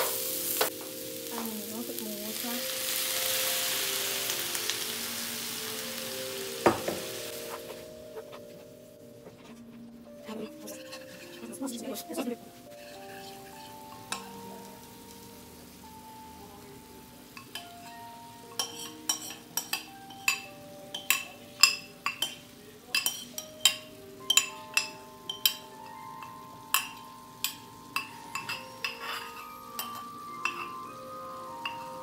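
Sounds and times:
soft background music: 0.0s - 32.0s
metal spoon clinking against pot: 18.6s - 31.0s.

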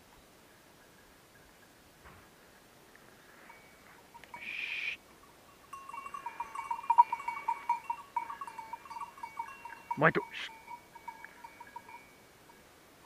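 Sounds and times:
dog collar bell jangling: 5.5s - 12.1s.

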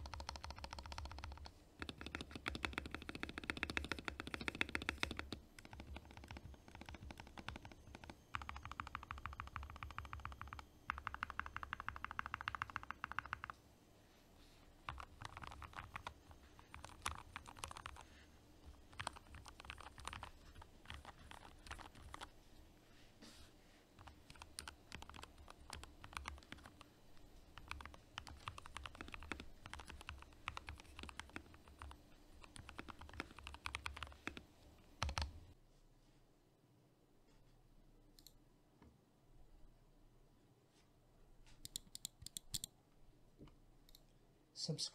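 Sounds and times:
mechanical keyboard typing: 0.0s - 13.6s, 14.8s - 22.3s, 24.0s - 26.9s, 27.5s - 35.5s.

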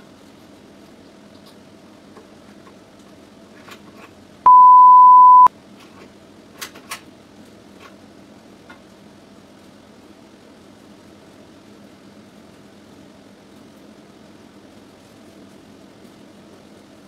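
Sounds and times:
loud pure tone beep: 4.5s - 5.5s.

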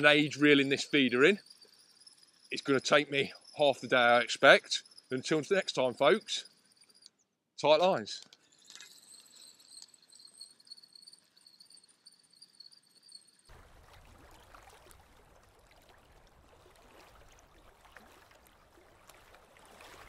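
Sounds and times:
fishing reel whine: 0.0s - 13.5s
water lapping: 13.5s - 20.0s.

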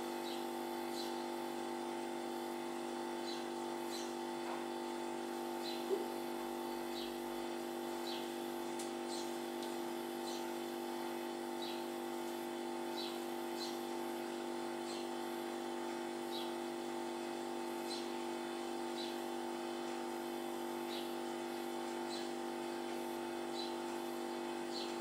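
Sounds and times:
steady multi-pitch hum: 0.0s - 25.0s
sparrow chirping: 3.2s - 4.2s, 10.2s - 10.5s.

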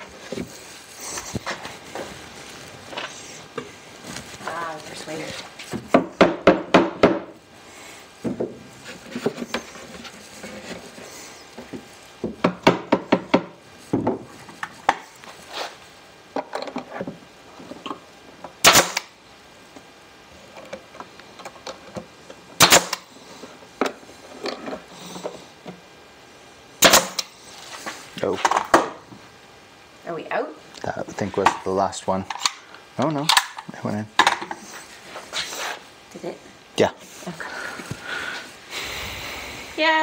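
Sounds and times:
wooden mallet knocking wood: 5.9s - 7.3s
brad nailer shots: 18.6s - 19.1s, 22.6s - 23.1s, 26.8s - 27.3s.

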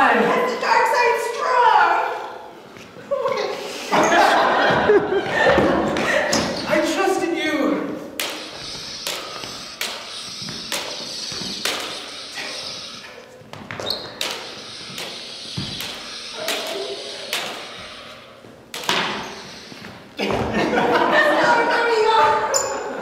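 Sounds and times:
sparring blades knocking: 8.2s - 19.7s.

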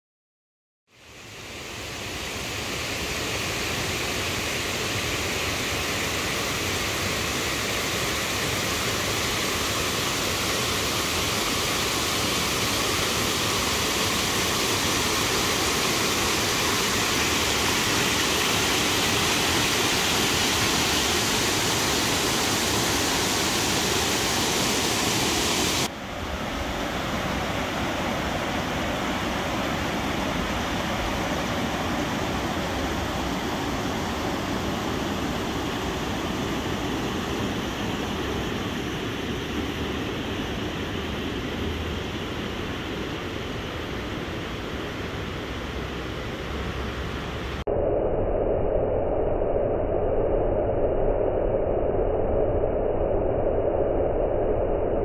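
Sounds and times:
river water pouring over a weir: 1.2s - 44.0s.

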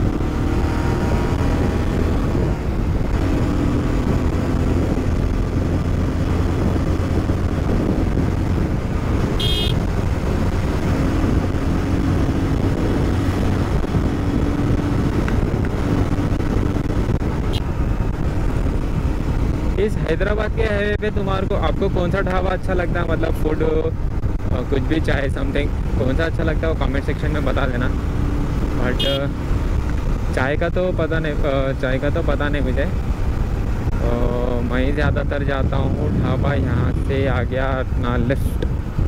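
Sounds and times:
motorcycle engine at speed: 0.0s - 39.0s
wind and road noise: 0.0s - 39.0s.

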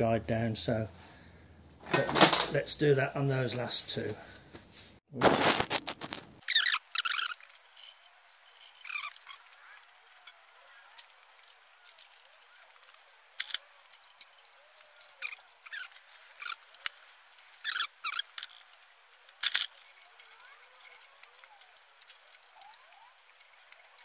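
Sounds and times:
hand tool squeaks: 6.4s - 18.8s.

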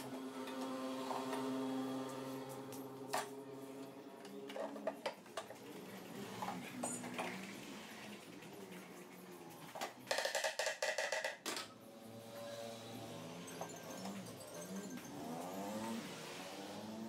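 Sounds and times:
wooden parts and tools clicking: 2.7s - 7.7s, 9.6s - 11.8s.

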